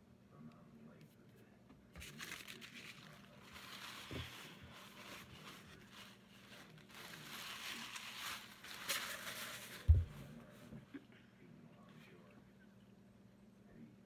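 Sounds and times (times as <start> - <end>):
paper napkin rustling: 2.0 - 10.8.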